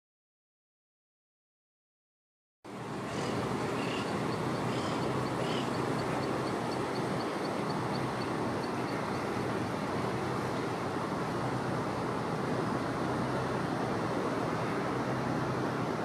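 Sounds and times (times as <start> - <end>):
boat engine rumble: 2.7 - 16.0
faint high chirping: 3.1 - 9.8.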